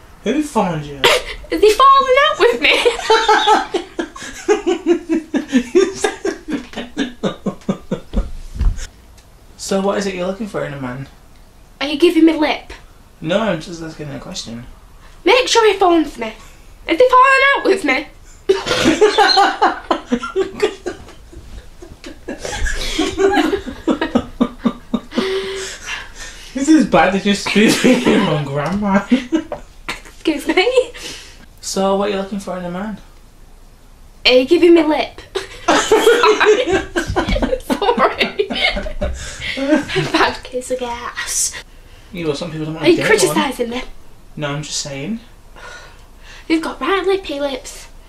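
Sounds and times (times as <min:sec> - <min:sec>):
person laughing: 0:02.8 - 0:08.3, 0:18.5 - 0:26.1, 0:35.3 - 0:40.3.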